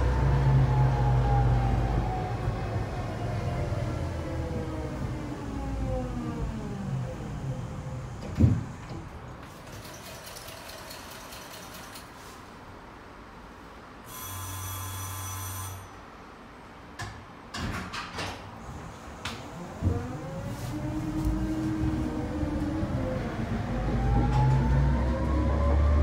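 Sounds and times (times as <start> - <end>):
tram motors whining: 0.0 - 9.3, 19.3 - 26.0
ringing signal: 14.1 - 16.0.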